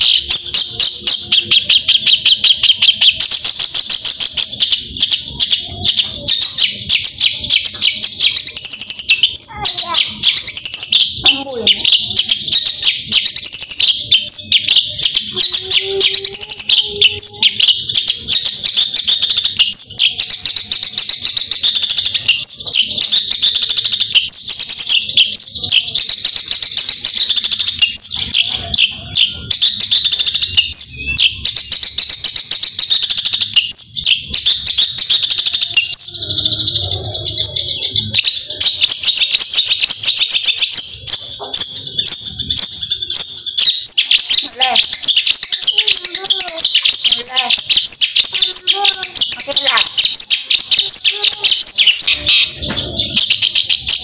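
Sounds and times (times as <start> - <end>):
bird singing rapid chatter: 0.0 - 54.0.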